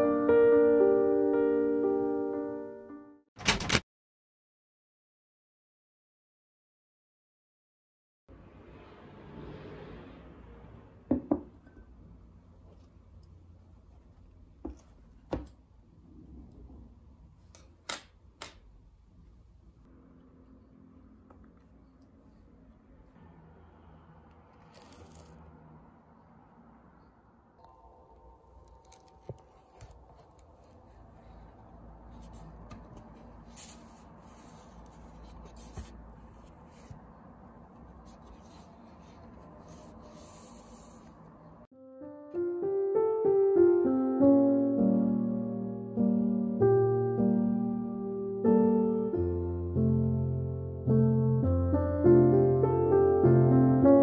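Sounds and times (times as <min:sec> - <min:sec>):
objects knocking on wooden table: 0:11.1 - 0:11.5
paper pages rustling: 0:28.7 - 0:41.2.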